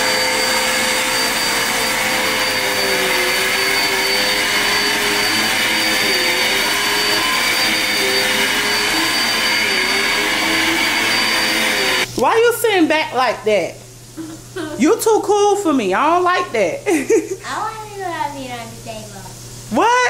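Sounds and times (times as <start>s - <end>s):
vacuum cleaner running on carpet: 0.0s - 12.1s.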